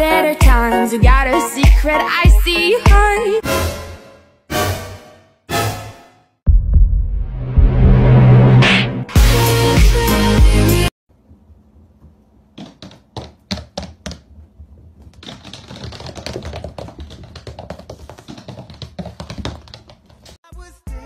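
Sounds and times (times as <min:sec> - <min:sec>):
hooves clattering on wooden floor: 0:12.0 - 0:20.4.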